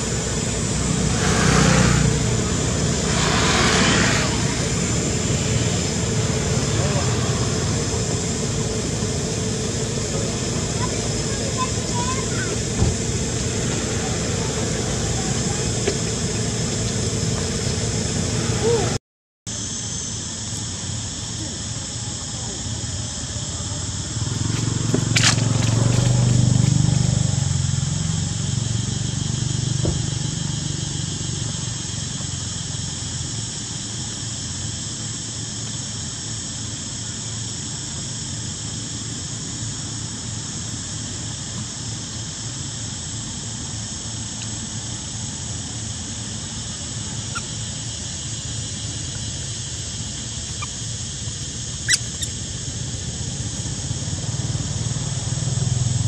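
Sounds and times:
vehicle rumbling past: 0.0s - 19.0s, 24.0s - 31.9s
insects droning: 0.0s - 56.0s.

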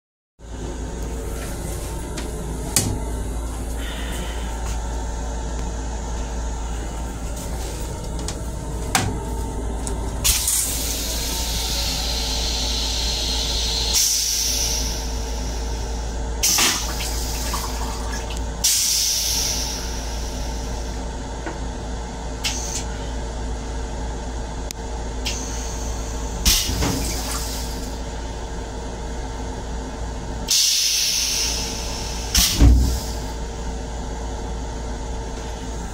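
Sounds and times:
steady low rumble: 0.4s - 35.9s
toilet flushing water rushing: 10.0s - 20.6s, 25.3s - 28.0s.

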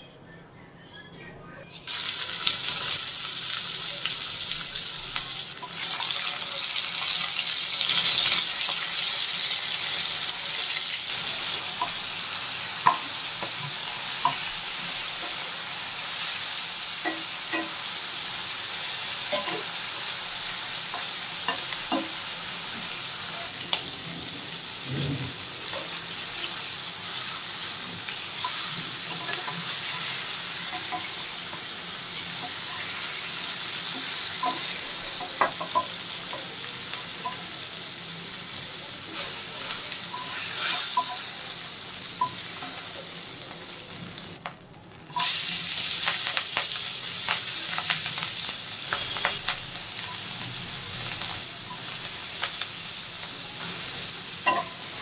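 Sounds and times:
fish sizzling in oil: 1.8s - 55.0s
metal spatula scraping pan: 40.1s - 41.3s.

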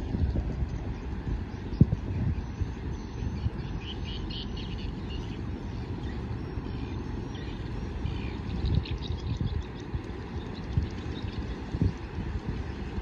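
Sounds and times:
wind on microphone: 0.0s - 4.3s, 7.5s - 13.0s
cargo ship rumble: 0.0s - 13.0s
faint bird chirps: 0.6s - 12.8s.

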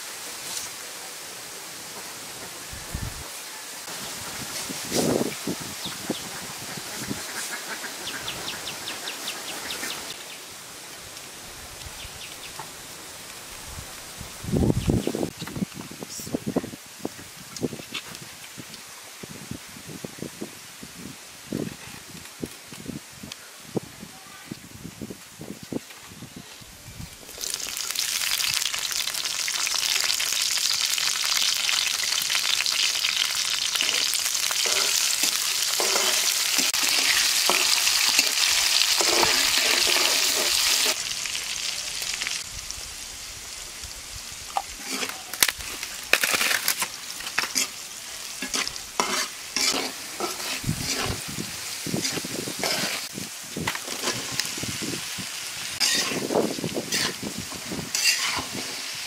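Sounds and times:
chilies sizzling in hot oil: 27.0s - 59.0s
utensils clicking and scraping pan: 33.8s - 41.0s, 48.4s - 51.2s, 52.0s - 53.1s, 55.8s - 56.3s, 56.9s - 57.2s, 57.9s - 58.7s.

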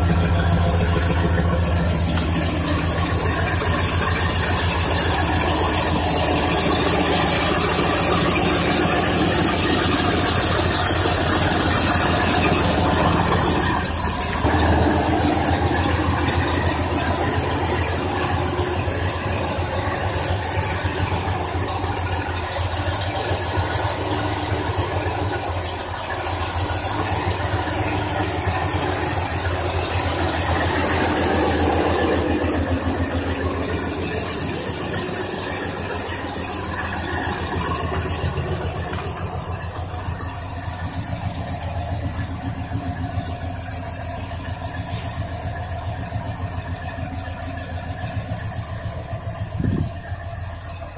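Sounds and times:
pickup engine idling: 0.0s - 50.9s.

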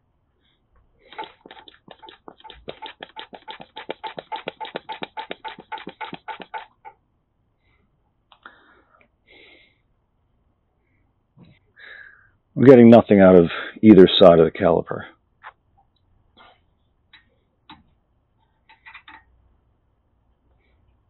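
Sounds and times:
hand pump clicking strokes: 1.1s - 6.9s.

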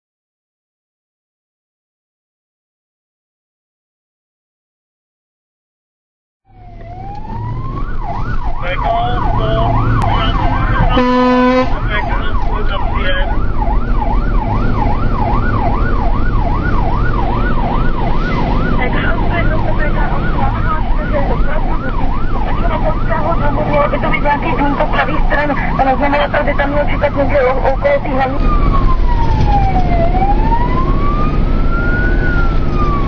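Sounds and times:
fire engine siren wailing: 6.5s - 33.0s
truck engine rumble: 6.5s - 33.0s
horn blast: 9.2s - 12.4s.

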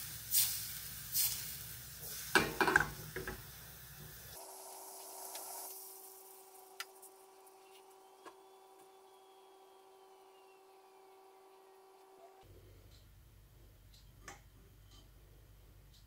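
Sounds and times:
liquid simmering in a pan: 0.0s - 8.1s
faint room hum: 0.0s - 16.0s.

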